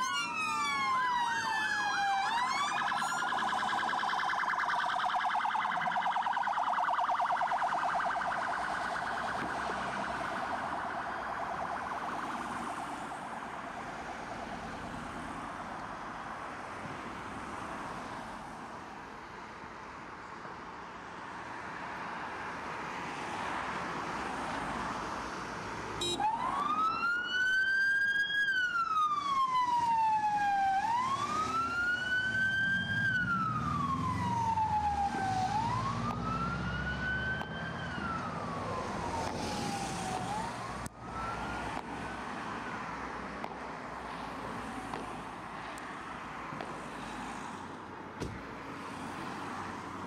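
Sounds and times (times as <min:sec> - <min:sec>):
police siren wailing: 0:00.0 - 0:15.7, 0:26.0 - 0:43.1
road traffic noise: 0:00.0 - 0:50.0.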